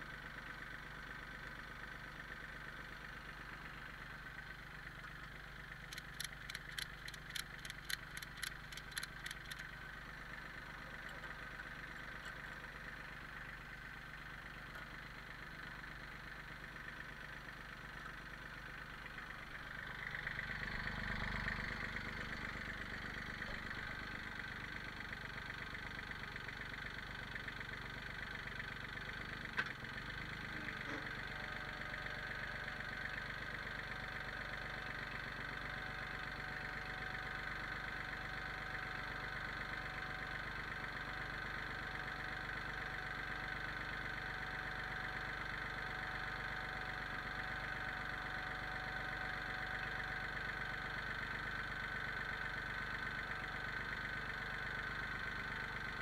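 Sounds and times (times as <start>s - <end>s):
tractor diesel engine running: 0.0s - 56.0s
sharp click: 5.9s - 9.7s.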